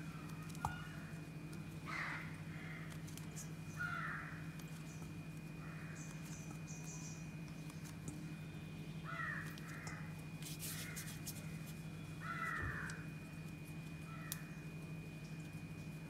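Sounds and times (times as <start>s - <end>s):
low steady hum: 0.0s - 16.0s
crow cawing: 1.9s - 2.9s, 3.8s - 4.4s, 5.6s - 6.0s, 9.0s - 10.1s, 12.2s - 13.0s, 14.1s - 14.4s.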